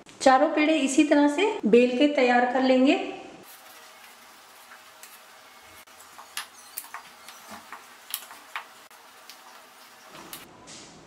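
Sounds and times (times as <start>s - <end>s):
rolling pin rolling dough: 5.8s - 10.5s.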